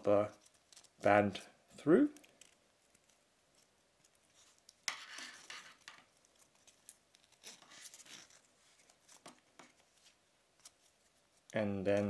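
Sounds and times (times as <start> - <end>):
watch strap rustling and scraping: 2.4 - 11.5.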